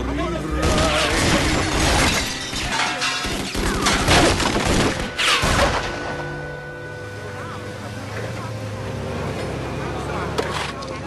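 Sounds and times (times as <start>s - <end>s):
music: 0.0s - 11.0s
glass breaking: 0.6s - 6.0s.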